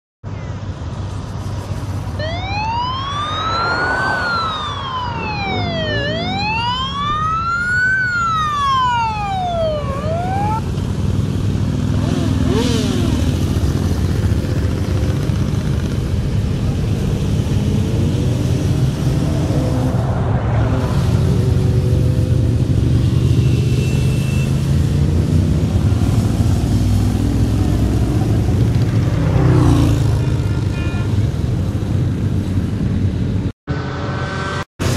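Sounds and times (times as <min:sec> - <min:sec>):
motorcycle engines riding past: 0:01.2 - 0:32.6
police siren wailing: 0:02.1 - 0:10.7.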